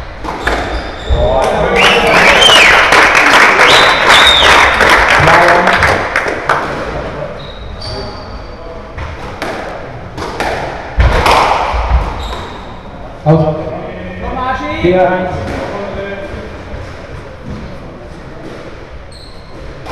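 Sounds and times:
squash ball cracking: 9.3 - 12.0
shoes squeaking on wooden floor: 11.9 - 12.7, 19.0 - 19.9.

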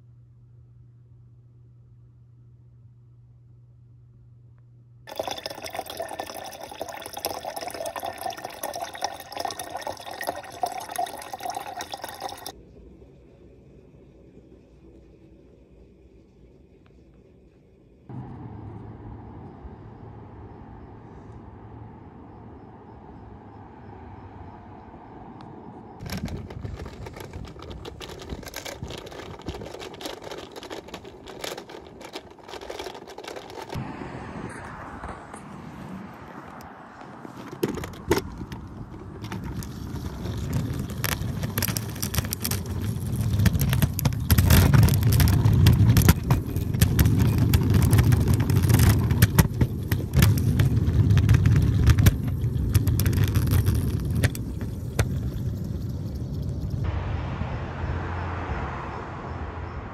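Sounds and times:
crackling and scraping: 5.1 - 12.6, 26.0 - 33.8, 34.5 - 56.9
scooter wheels rolling on pavement: 5.1 - 12.6, 25.9 - 56.9.

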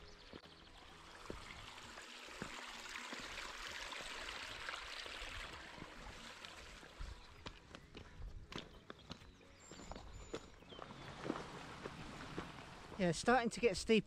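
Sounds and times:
stream running over stones: 0.3 - 7.7, 10.9 - 13.1
footsteps on stony ground: 7.0 - 13.0.

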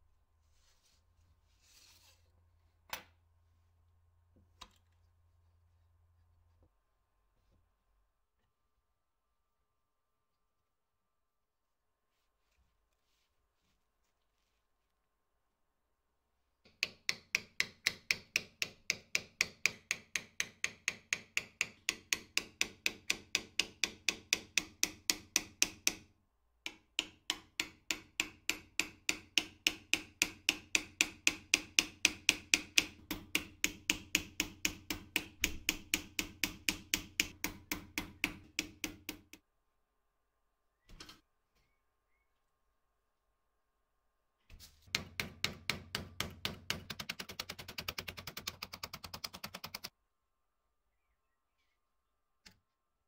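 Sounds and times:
hammer tapping: 16.7 - 39.4, 44.9 - 49.9.

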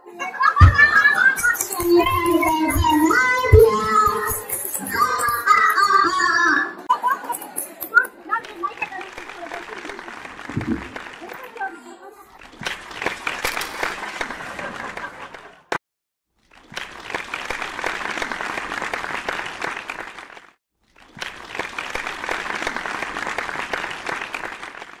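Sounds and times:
audience applauding: 7.3 - 11.7, 12.4 - 15.8, 16.4 - 25.0.

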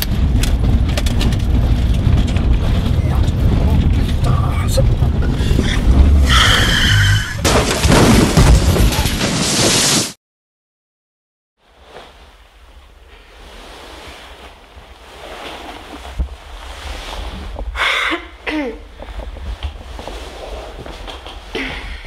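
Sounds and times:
room noise rumble and hiss: 11.6 - 17.6
person exhaling: 17.8 - 18.4, 21.5 - 22.0
person sighing: 21.6 - 22.0.

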